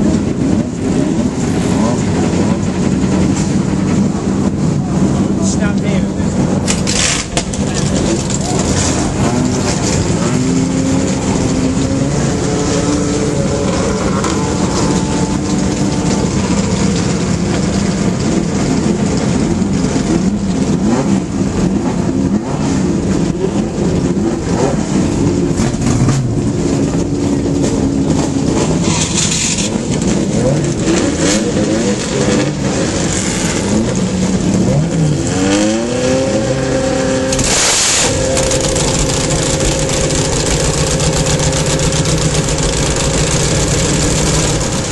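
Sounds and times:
racing car engines idling: 0:00.0 - 0:44.9
engine revving up: 0:23.4 - 0:44.9.

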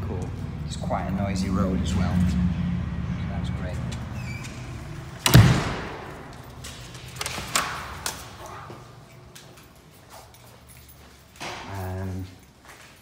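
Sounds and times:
door handle clicks and knocks: 0:05.2 - 0:06.0
door thud: 0:05.2 - 0:06.4.

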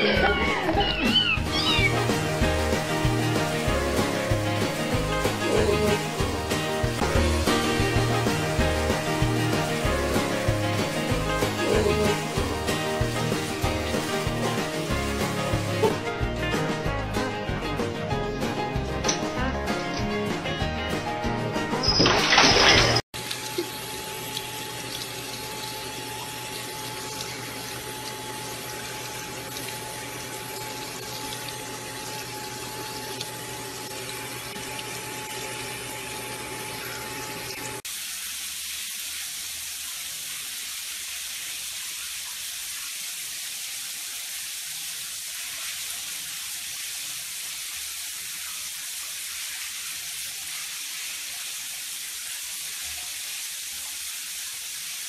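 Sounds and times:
water running from tap: 0:00.0 - 0:55.0
hiss of spraying water: 0:00.9 - 0:16.0, 0:37.8 - 0:55.0.

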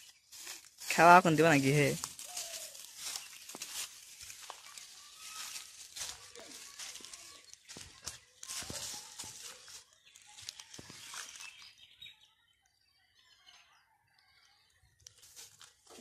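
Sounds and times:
footsteps crunching dry leaves: 0:00.0 - 0:11.8, 0:15.1 - 0:16.0
faint bird chirps: 0:06.5 - 0:15.2.

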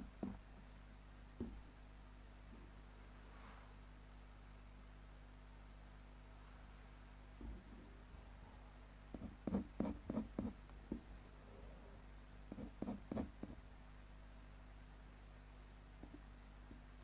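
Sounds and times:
steady low hum: 0:00.0 - 0:17.0
pen scratching on paper: 0:09.2 - 0:10.6, 0:12.5 - 0:13.6.

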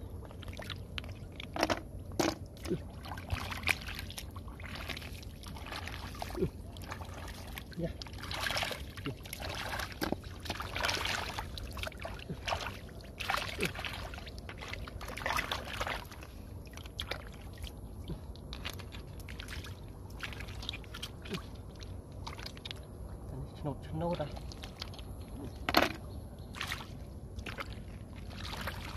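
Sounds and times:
hands splashing in muddy water: 0:02.2 - 0:17.8, 0:26.5 - 0:28.9.

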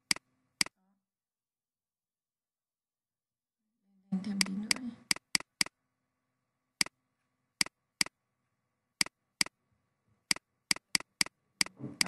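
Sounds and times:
computer mouse clicking: 0:00.0 - 0:00.8, 0:04.3 - 0:05.8, 0:10.3 - 0:12.0.

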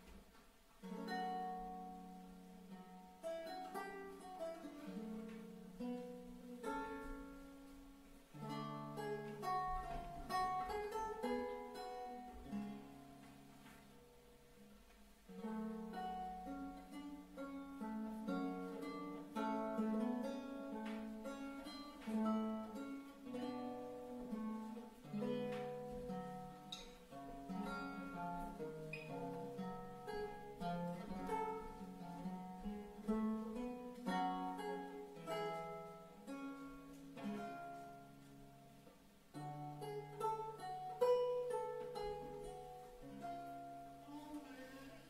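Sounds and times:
lute playing: 0:00.0 - 0:45.0.

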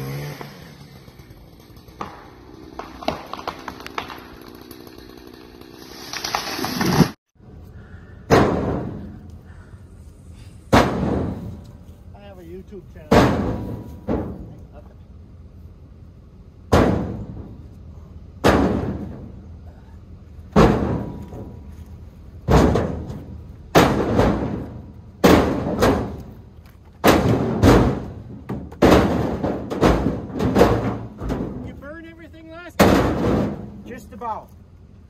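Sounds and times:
firewood knocking onto trailer: 0:08.3 - 0:09.2, 0:10.7 - 0:11.6, 0:13.0 - 0:14.6, 0:16.7 - 0:17.6, 0:18.4 - 0:19.4, 0:20.5 - 0:32.0, 0:32.7 - 0:34.0.

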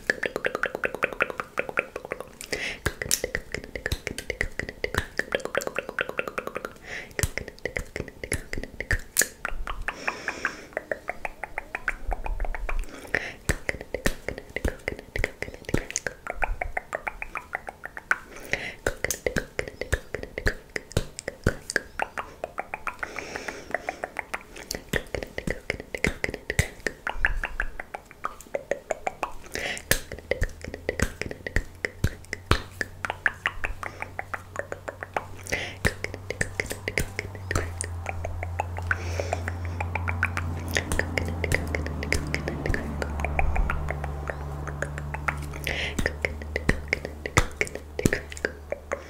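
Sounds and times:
steady low hum: 0:00.0 - 0:49.0
wet tongue clicks: 0:00.0 - 0:49.0
breathy hiss: 0:02.3 - 0:03.8, 0:06.7 - 0:07.2, 0:09.9 - 0:10.9, 0:21.6 - 0:25.5.

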